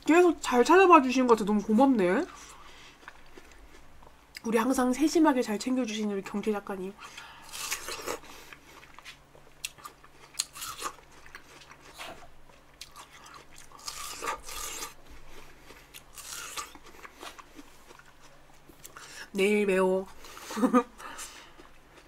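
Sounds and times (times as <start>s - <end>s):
chewing watermelon crunches: 2.2s - 4.5s, 7.2s - 19.0s.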